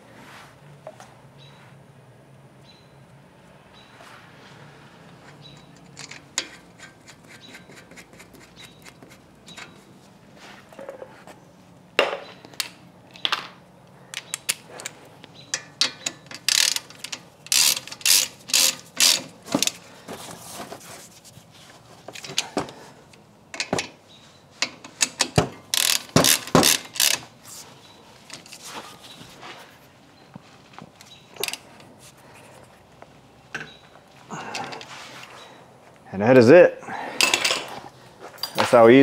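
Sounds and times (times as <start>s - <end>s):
ratchet wrench clicking: 15.5s - 19.8s, 24.6s - 27.2s.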